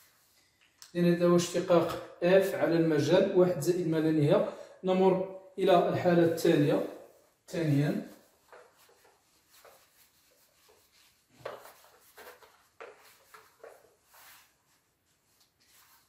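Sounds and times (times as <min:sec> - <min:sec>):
eraser wiping whiteboard: 0:06.7 - 0:16.0.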